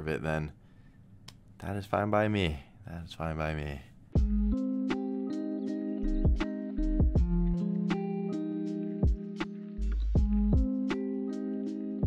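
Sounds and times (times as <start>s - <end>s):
guitar music with bass and beat: 4.2s - 12.0s.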